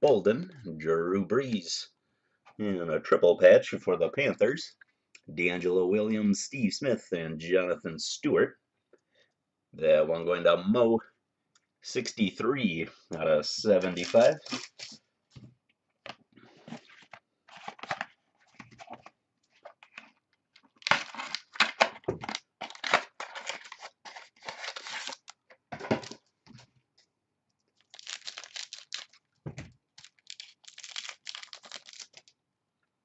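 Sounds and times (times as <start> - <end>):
card pack wrapper crinkling: 13.8 - 15.0, 19.6 - 25.4, 27.8 - 32.4.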